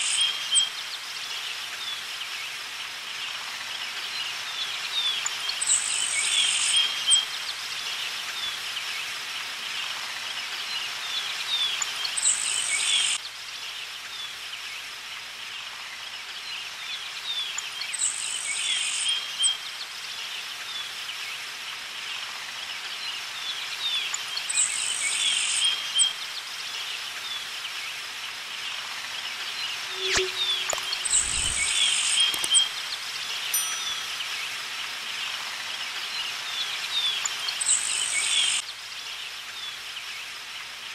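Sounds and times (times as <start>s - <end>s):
birds chirping: 29.7s - 35.3s.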